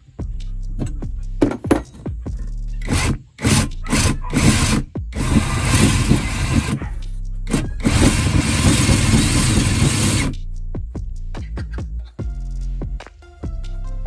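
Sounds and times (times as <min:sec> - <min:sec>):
power tool grinding metal: 0:02.8 - 0:06.8, 0:07.5 - 0:10.3.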